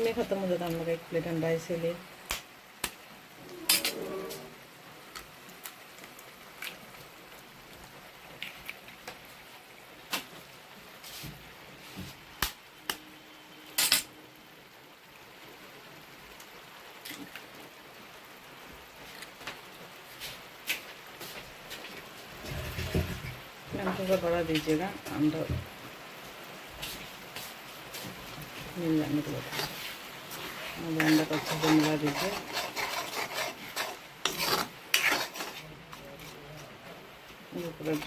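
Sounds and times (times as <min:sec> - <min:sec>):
faint hiss of food cooking: 0:00.0 - 0:38.0
eggs cracking against metal pan: 0:03.6 - 0:04.0, 0:30.8 - 0:35.6.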